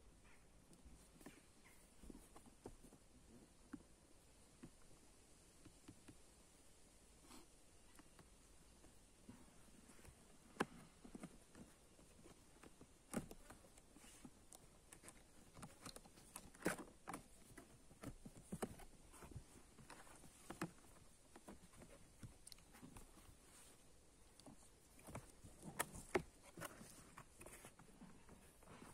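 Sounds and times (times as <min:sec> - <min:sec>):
cardboard box handling: 0:09.6 - 0:28.9.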